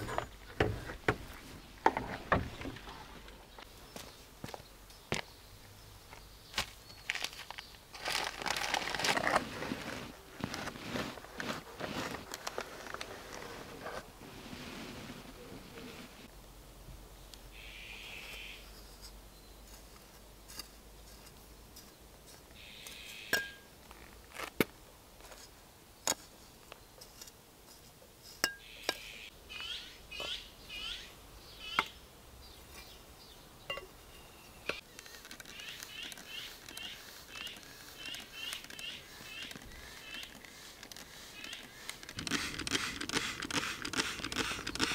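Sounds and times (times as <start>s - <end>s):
trowel scraping cement and gravel: 7.1s - 16.2s, 34.7s - 44.9s
bird chirping: 17.2s - 18.6s, 22.6s - 23.6s, 28.5s - 41.9s
trowel clicking on stone: 34.7s - 44.9s.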